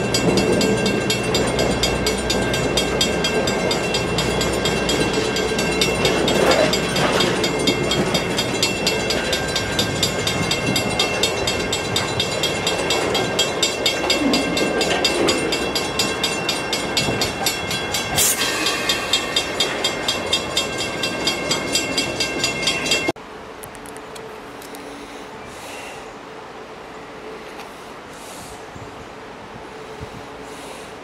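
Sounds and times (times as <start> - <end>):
crossing bell ringing: 0.0 - 23.2
train coach rumbling and clattering: 0.0 - 23.2.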